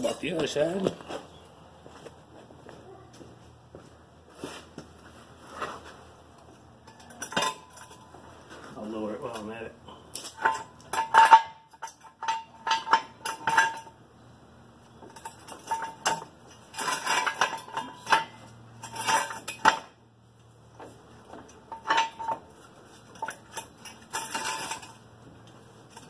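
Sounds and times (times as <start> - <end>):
metal tools clanking: 6.8 - 8.2, 8.9 - 14.0, 14.9 - 20.0, 20.8 - 26.0.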